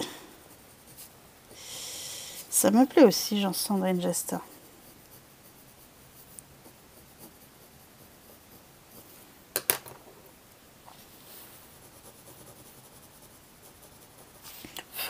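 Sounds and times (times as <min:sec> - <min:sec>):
pencil scratching on paper: 0:00.4 - 0:01.2, 0:02.7 - 0:09.1, 0:11.4 - 0:14.7.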